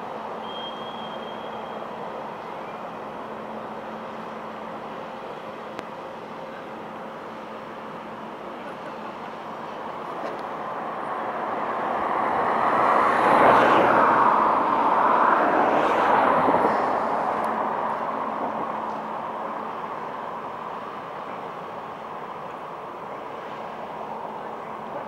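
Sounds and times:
vehicle passing close by: 0:10.7 - 0:19.4.

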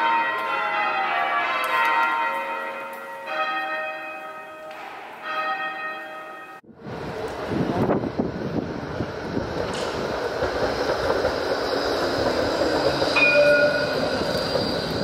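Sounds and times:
tram high whine: 0:06.6 - 0:15.0
tram wheels and motors rumbling: 0:06.6 - 0:15.0
brief tone: 0:13.2 - 0:14.1.

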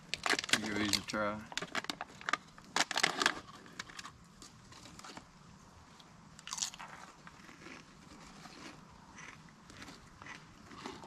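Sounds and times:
chips being crunched: 0:06.4 - 0:07.8.

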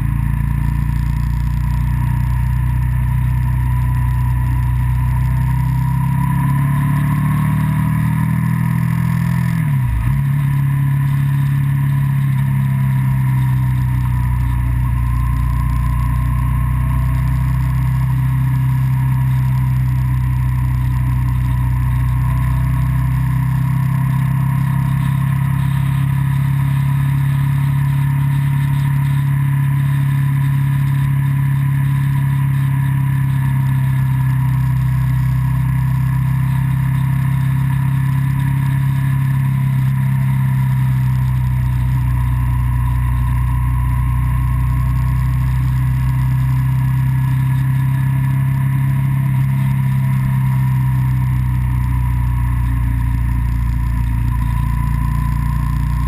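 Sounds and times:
road and wind noise: 0:00.0 - 0:56.0
vehicle engine droning: 0:00.0 - 0:56.0.

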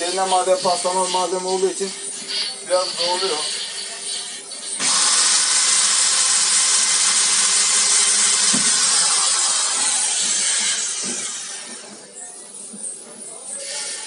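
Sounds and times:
electric drill boring into metal: 0:04.7 - 0:11.8.

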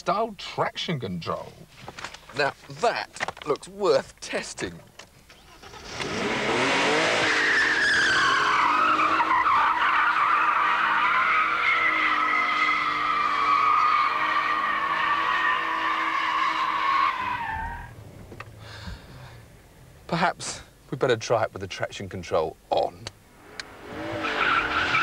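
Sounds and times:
tyres squealing in wheelspin: 0:05.3 - 0:17.9, 0:23.9 - 0:25.0
car engine running hard: 0:05.6 - 0:09.3.

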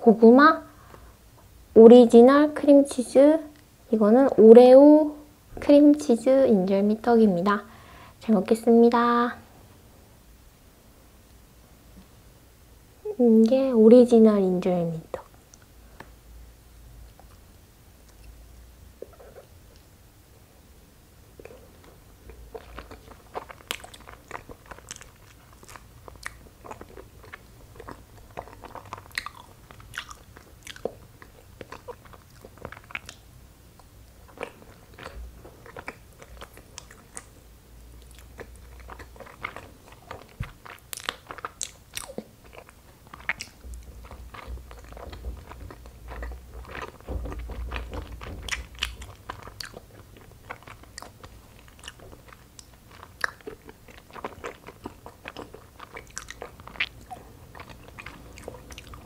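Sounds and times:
person chewing wetly: 0:21.4 - 0:59.0.

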